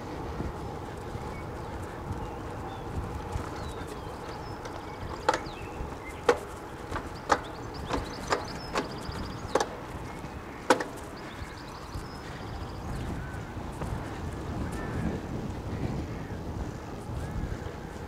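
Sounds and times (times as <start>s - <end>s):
sharp hollow knocks: 4.6s - 11.4s.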